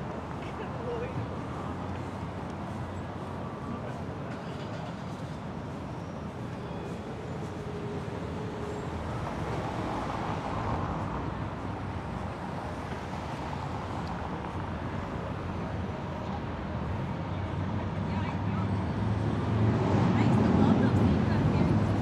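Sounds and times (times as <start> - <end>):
cars driving past: 4.9 - 15.8.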